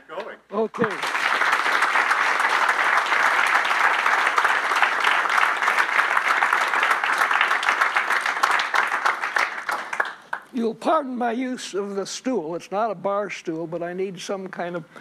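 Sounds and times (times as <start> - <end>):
audience applauding: 0.8 - 10.5.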